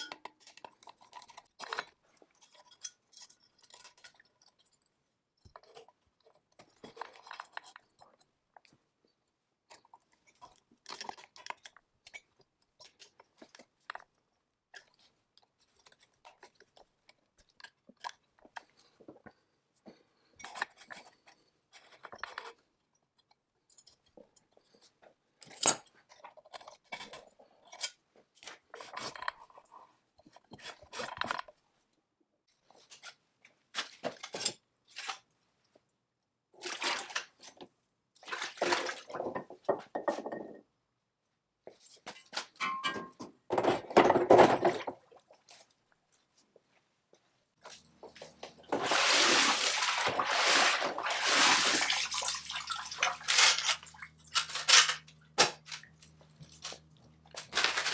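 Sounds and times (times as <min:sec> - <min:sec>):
metallic tool clicks and scrapes: 0:53.2 - 0:57.9.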